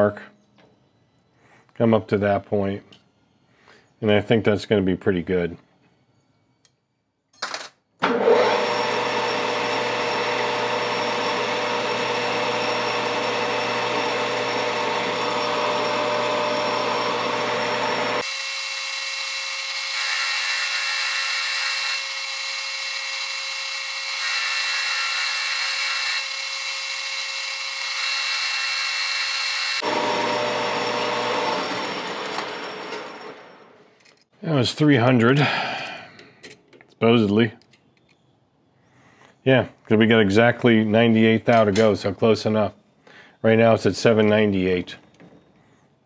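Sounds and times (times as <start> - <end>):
metal lathe running: 8.1 - 33.6.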